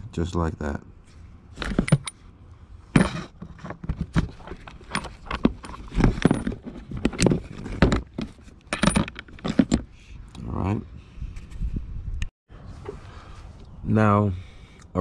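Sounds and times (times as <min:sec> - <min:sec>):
metal parts clinking: 0:03.0 - 0:09.9.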